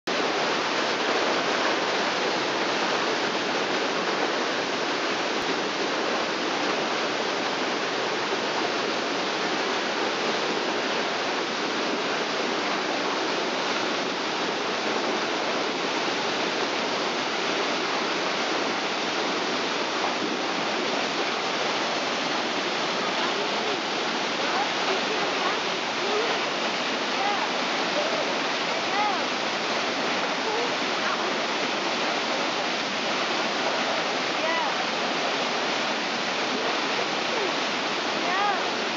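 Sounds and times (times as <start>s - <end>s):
waterfall rushing over rocks: 0.1s - 38.9s.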